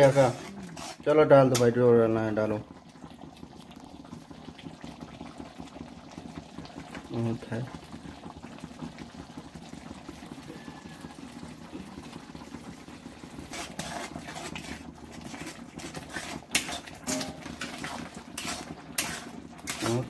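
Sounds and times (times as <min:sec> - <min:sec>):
utensil clinking on metal pans: 0:00.0 - 0:01.8, 0:16.2 - 0:20.0
water boiling hard: 0:00.0 - 0:20.0.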